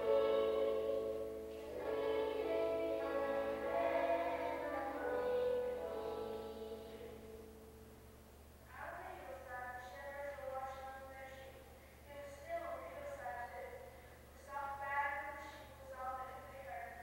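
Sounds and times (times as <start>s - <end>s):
choir singing held notes: 0.0s - 7.7s.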